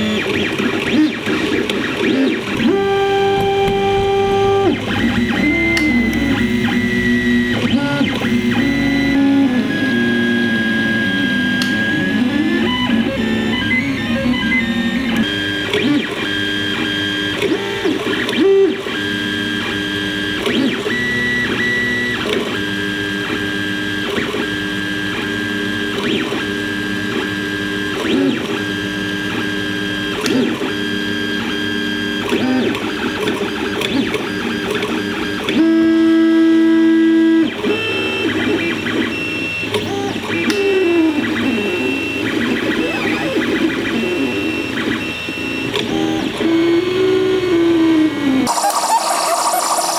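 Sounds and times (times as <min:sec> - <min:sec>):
stepper motors whining: 0:00.0 - 0:22.2, 0:37.6 - 0:49.9.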